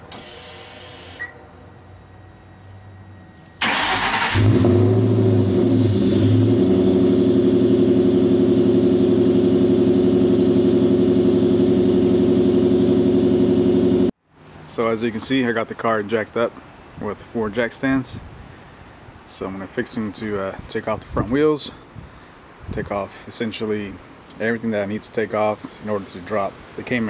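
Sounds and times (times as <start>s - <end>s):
car engine starting and idling: 0.0s - 14.1s.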